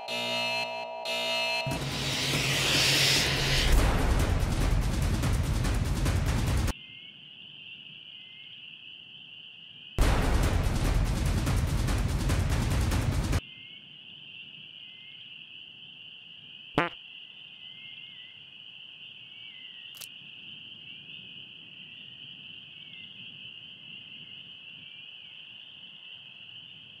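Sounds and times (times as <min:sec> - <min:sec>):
crickets chirping: 0:06.8 - 0:10.0, 0:13.4 - 0:27.0
frog croak: 0:16.7 - 0:18.6.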